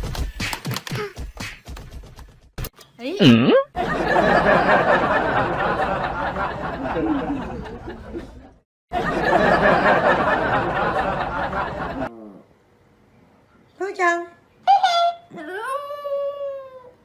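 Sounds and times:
people chattering: 3.8s - 12.1s
people laughing: 3.8s - 12.1s.

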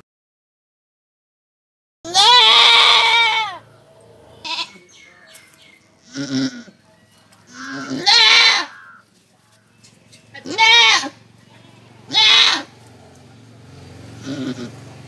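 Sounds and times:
goat bleating: 2.1s - 3.7s, 4.4s - 5.0s, 6.0s - 6.8s, 7.5s - 9.1s, 10.3s - 12.9s, 14.2s - 14.9s.

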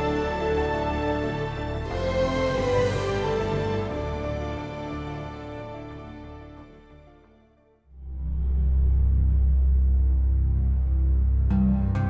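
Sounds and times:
slow sad theme music: 0.0s - 12.0s.

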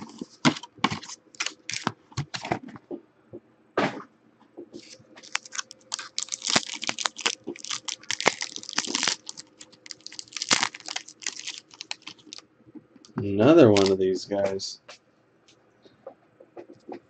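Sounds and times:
foil wrapper crinkling and tearing: 0.0s - 2.0s, 4.8s - 12.4s, 13.7s - 14.0s.

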